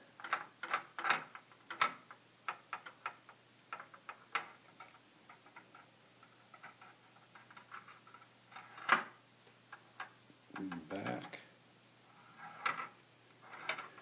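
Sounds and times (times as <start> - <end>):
metal ball rolling on plastic: 3.8 - 9.2, 12.1 - 14.0.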